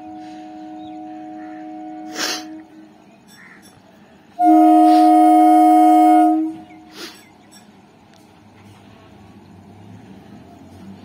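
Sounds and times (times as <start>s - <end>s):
two-tone train horn blast: 0.0s - 3.1s, 4.4s - 6.9s.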